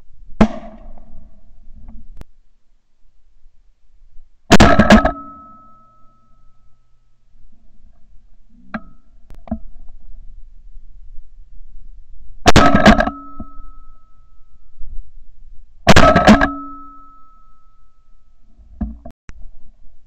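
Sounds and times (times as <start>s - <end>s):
shotgun firing: 4.5s - 5.4s, 12.5s - 13.2s, 15.9s - 16.7s
metallic ringing: 4.5s - 7.3s, 12.5s - 15.0s, 15.9s - 18.5s.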